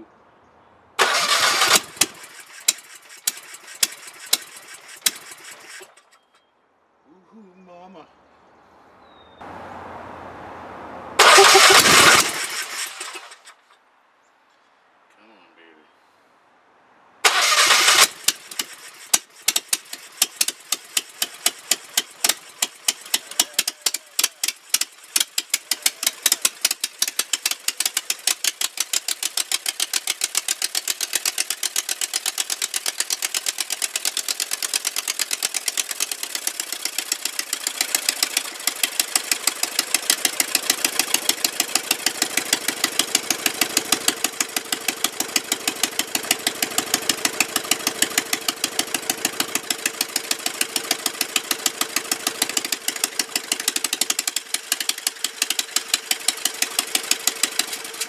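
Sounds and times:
electric starter cranking: 1.0s - 6.4s, 11.2s - 13.7s, 17.2s - 58.0s
engine running rough with pops: 17.7s - 58.0s.

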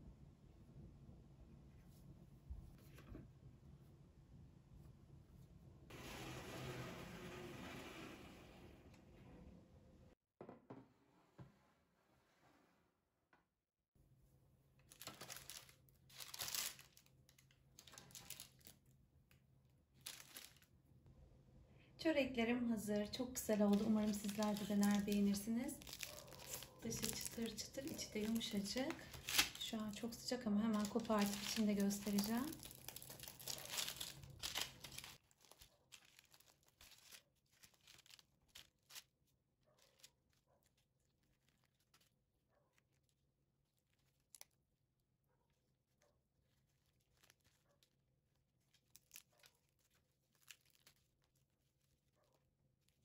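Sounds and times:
baking parchment rustling: 14.8s - 20.8s, 22.8s - 53.0s
flaky crust crackling torn: 14.9s - 18.9s, 23.6s - 29.7s, 30.7s - 42.2s, 48.6s - 52.0s.

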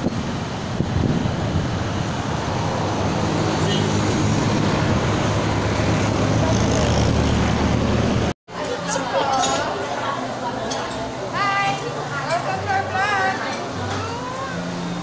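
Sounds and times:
wind and road noise: 0.0s - 8.4s.

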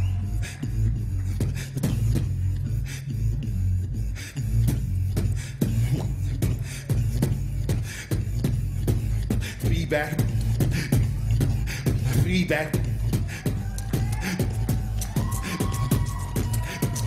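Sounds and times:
snare-like beatbox clicks: 0.0s - 3.1s, 4.2s - 17.0s
humming bass line: 0.0s - 17.0s.

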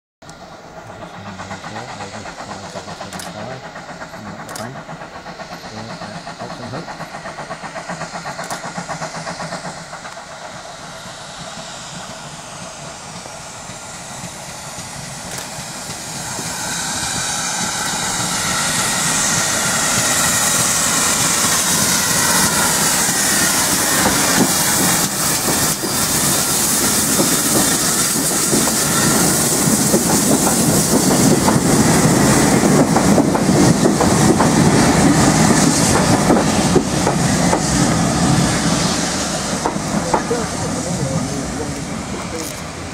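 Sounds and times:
steam locomotive running: 0.2s - 42.9s
steam hissing: 0.3s - 42.9s.

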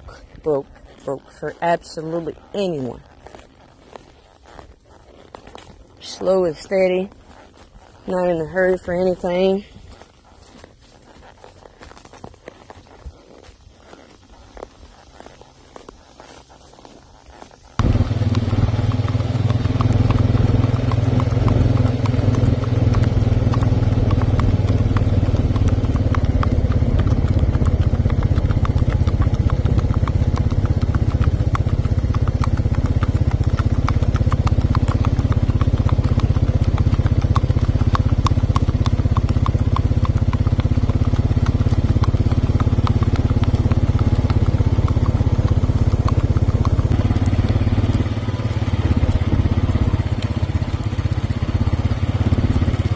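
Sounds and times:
hooves clip-clopping on asphalt: 0.0s - 52.9s
vehicle engine hum: 11.2s - 52.9s.

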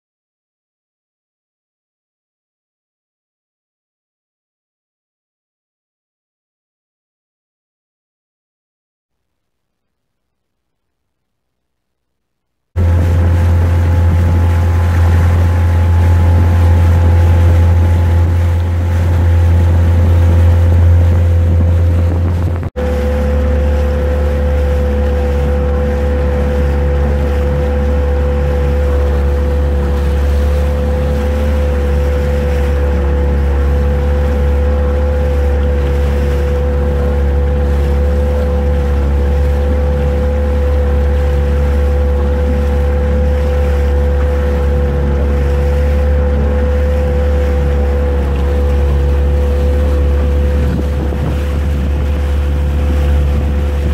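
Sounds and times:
water noise: 9.2s - 53.9s
outboard motor running: 12.8s - 53.9s
wind on microphone: 12.8s - 53.9s.

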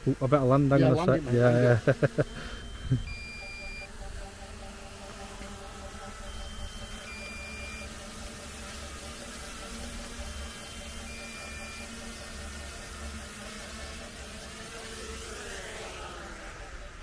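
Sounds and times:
electronic warning beeps: 0.8s - 13.8s.

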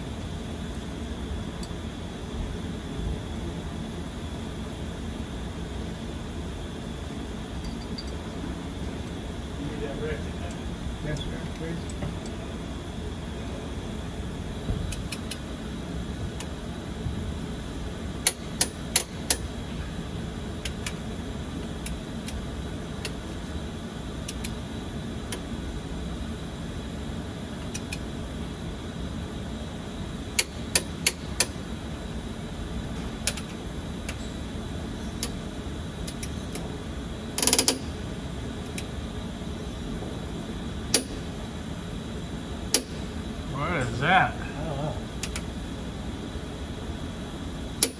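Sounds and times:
steady background noise: 0.0s - 47.9s
ratchet wrench clicking: 37.4s - 37.8s.

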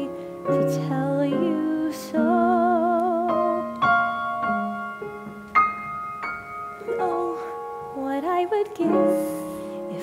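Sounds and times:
person singing: 0.0s - 3.9s, 6.8s - 10.0s
piano chords: 0.0s - 10.0s.

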